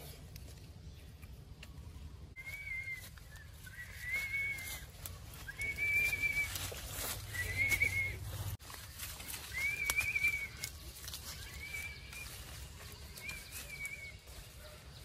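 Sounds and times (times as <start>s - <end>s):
boy whistling: 2.4s - 6.7s, 7.3s - 8.3s, 9.5s - 10.6s, 13.2s - 14.2s.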